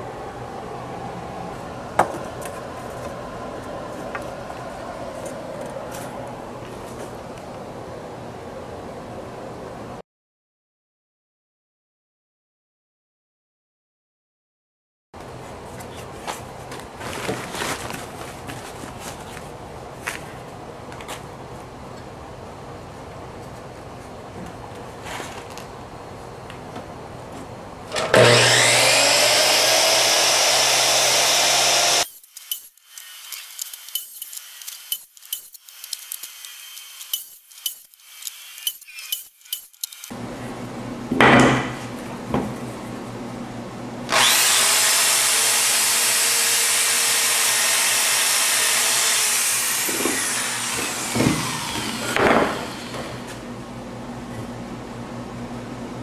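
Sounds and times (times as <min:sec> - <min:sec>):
power saw running: 0:27.9 - 0:40.2, 0:44.1 - 0:53.2.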